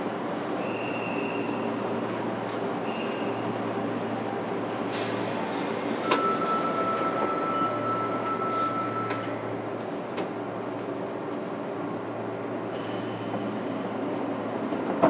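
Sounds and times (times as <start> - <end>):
train car low hum: 0.0 - 15.0
air hiss: 4.9 - 6.0.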